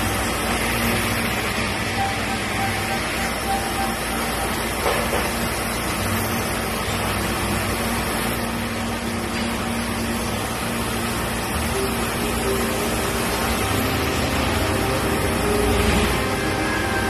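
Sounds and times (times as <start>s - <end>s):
milling machine cutting: 0.0s - 17.0s.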